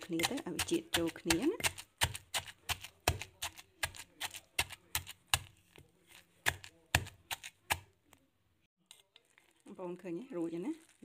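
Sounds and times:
wooden pestle pounding paste: 0.0 - 7.9.

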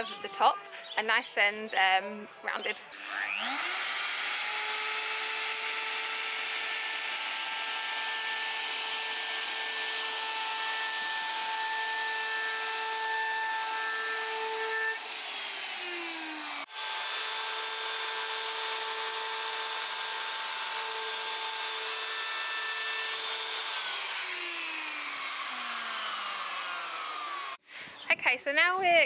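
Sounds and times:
router whining: 2.9 - 27.6.

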